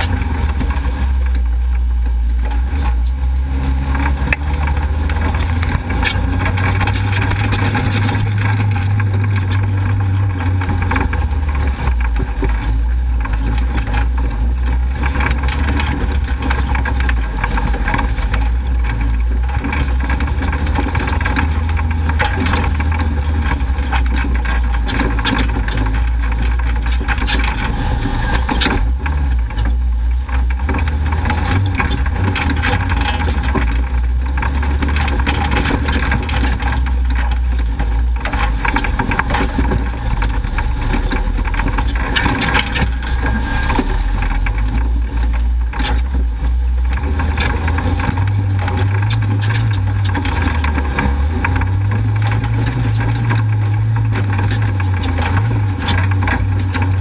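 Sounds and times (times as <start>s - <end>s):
engine rumble: 0.0s - 57.0s
knocks and rattles over bumps: 0.0s - 57.0s
road noise rushing: 0.0s - 57.0s.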